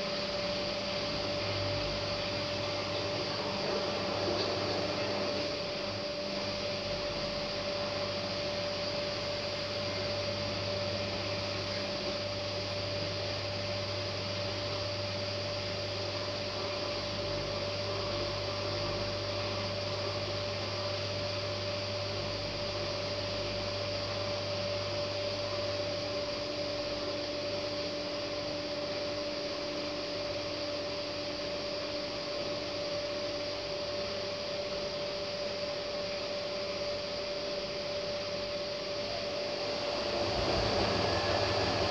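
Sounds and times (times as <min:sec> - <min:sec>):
washing machine hum: 0:00.0 - 0:41.9
low drone: 0:37.6 - 0:41.9.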